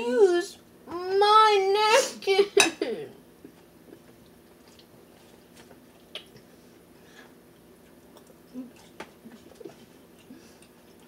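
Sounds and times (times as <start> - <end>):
faint chewing: 3.4 - 11.0.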